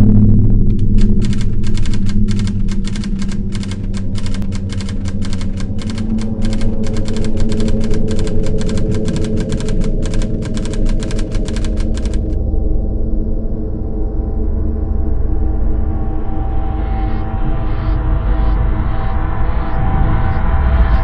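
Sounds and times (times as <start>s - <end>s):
low musical drone: 0.0s - 21.0s
typewriter key clicks: 0.7s - 12.4s.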